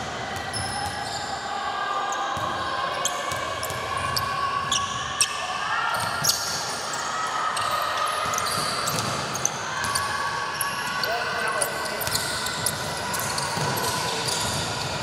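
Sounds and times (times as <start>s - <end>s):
sneaker squeaks: 3.0s - 15.0s.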